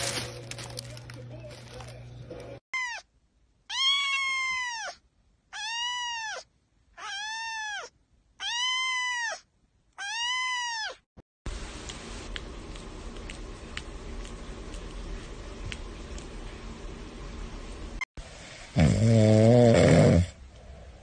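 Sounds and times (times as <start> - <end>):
cat meowing: 2.8 - 3.1, 3.7 - 11.0.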